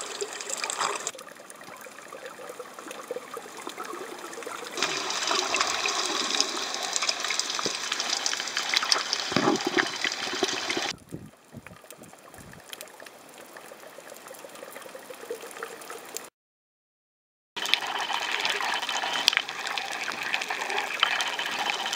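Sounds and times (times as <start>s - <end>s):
underwater water hiss with clicks: 0.0s - 1.1s, 2.9s - 10.9s, 17.6s - 21.9s.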